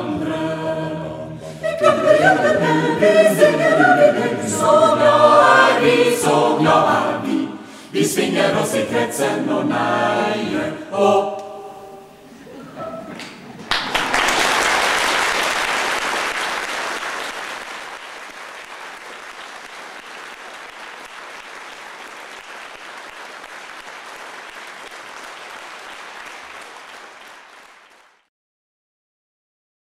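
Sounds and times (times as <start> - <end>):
audience applauding: 13.6 - 28.3.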